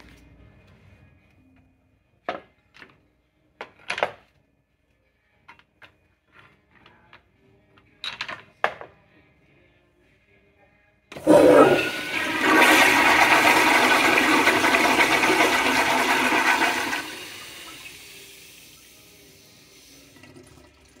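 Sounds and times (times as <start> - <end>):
toilet water rushing: 11.1 - 21.0.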